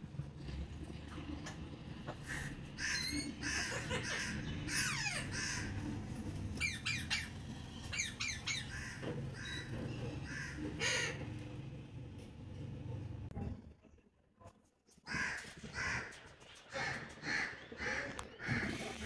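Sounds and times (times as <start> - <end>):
parakeet squawking and chattering: 2.2 - 5.9, 6.5 - 11.3.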